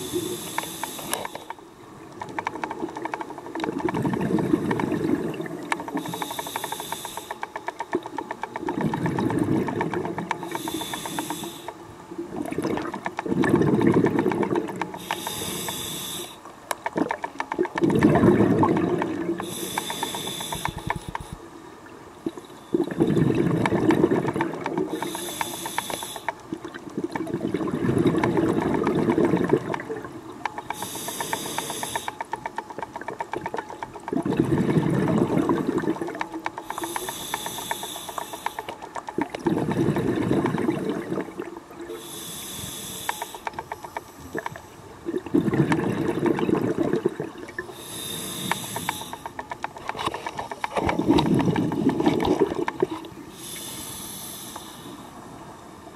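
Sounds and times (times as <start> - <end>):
diver breathing through regulator: 0.0 - 1.6, 5.8 - 7.6, 9.2 - 11.8, 14.9 - 16.4, 19.4 - 21.4, 24.1 - 26.4, 30.6 - 32.4, 34.9 - 38.8, 41.9 - 44.5, 47.7 - 50.6, 53.2 - 55.2
exhaled bubbles rushing: 3.6 - 5.8, 8.6 - 10.3, 12.2 - 14.8, 17.0 - 19.5, 22.2 - 25.0, 26.5 - 30.2, 33.2 - 36.2, 39.1 - 42.0, 44.3 - 47.8, 50.7 - 53.2.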